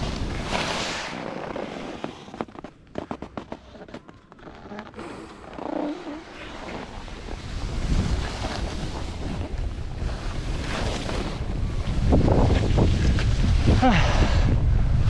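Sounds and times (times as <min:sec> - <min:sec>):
skis scraping over packed snow: 0:00.0 - 0:14.5
wind buffeting microphone: 0:06.9 - 0:15.0.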